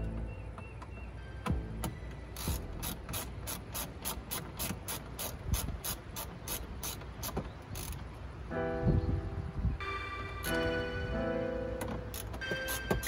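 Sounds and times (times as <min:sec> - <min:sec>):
ratchet wrench clicking: 0:02.4 - 0:08.1, 0:12.1 - 0:13.0.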